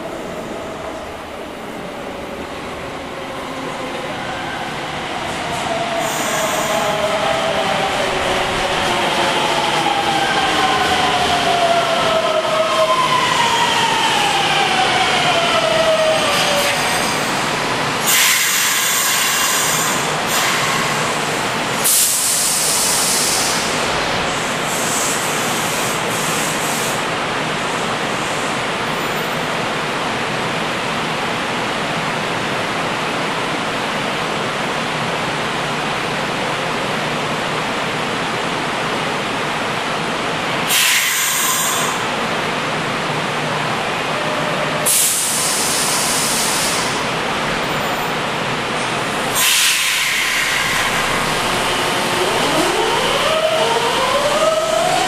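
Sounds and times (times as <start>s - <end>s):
rumble of standing train: 0.0s - 55.0s
air hiss bursts: 16.6s - 21.2s, 21.8s - 27.0s, 40.7s - 42.0s, 44.8s - 47.1s, 49.3s - 51.3s.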